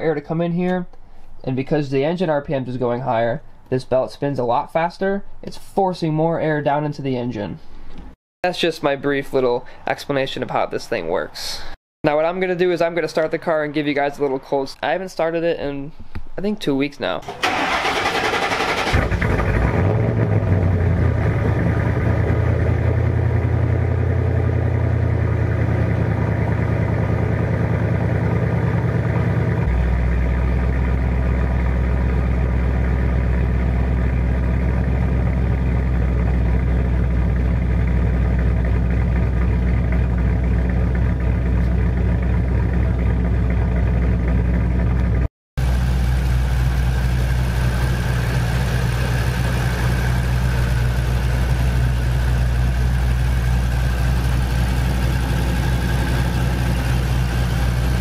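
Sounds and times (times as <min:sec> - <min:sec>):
car engine idling: 0:17.2 - 0:58.0.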